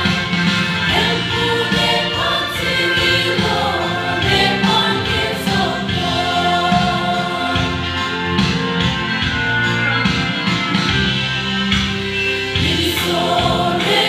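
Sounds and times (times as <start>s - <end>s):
choir singing in harmony: 0.0s - 8.9s, 12.2s - 14.0s.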